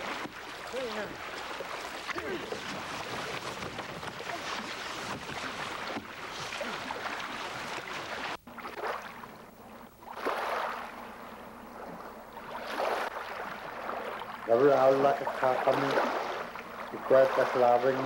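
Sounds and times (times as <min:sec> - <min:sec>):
water splashing around canoe: 0:00.0 - 0:18.0.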